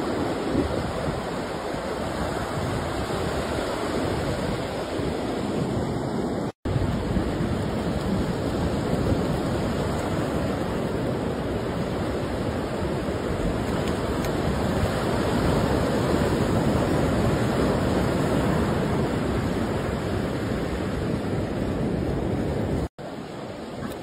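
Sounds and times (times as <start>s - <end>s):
surf breaking on a beach: 0.0s - 24.0s.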